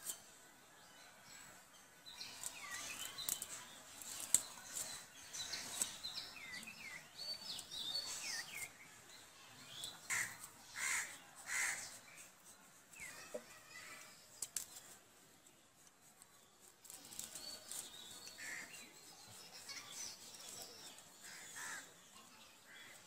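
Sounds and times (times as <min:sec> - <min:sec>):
birds chirping: 0:01.7 - 0:14.9
crow cawing: 0:10.1 - 0:11.8.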